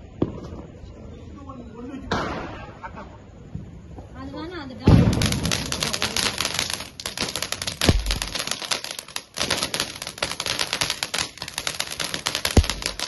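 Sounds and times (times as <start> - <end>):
firecrackers crackling: 4.6 - 13.0.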